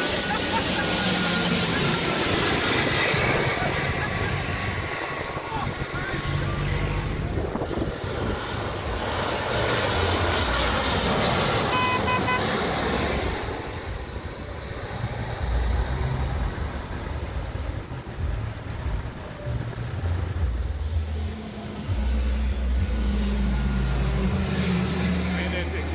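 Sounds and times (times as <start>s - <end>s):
jet airliner engine noise: 0.0s - 25.9s
wind buffeting microphone: 2.3s - 9.0s
short horn toot: 11.6s - 12.6s.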